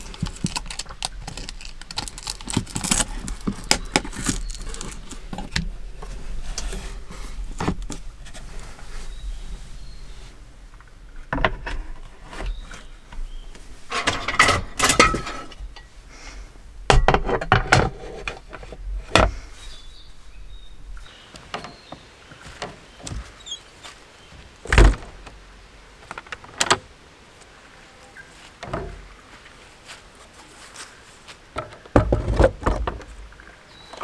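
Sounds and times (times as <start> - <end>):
camping gear clattering in wooden box: 13.9 - 15.8, 31.6 - 33.2.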